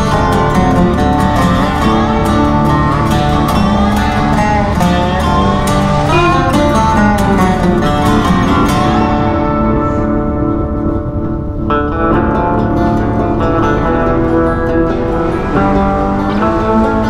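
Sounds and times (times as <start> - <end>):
guitar tune with steady beat: 0.0 - 17.0.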